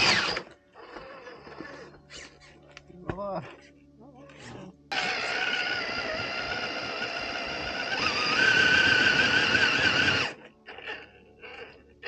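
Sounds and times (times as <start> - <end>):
electric motor whining: 0.0 - 1.7, 4.9 - 11.8.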